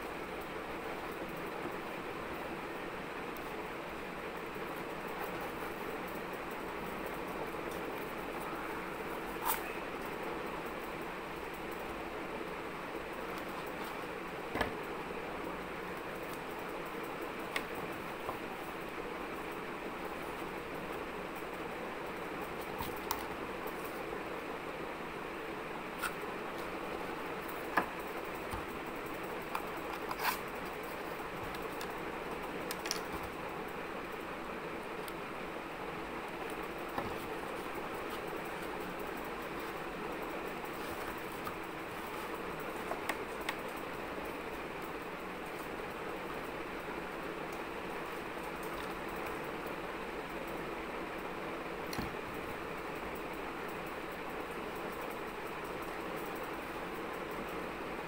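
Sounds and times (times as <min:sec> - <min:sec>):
steady background hiss: 0:00.0 - 0:58.0
cardboard tubes handled: 0:29.4 - 0:32.0, 0:36.5 - 0:38.8.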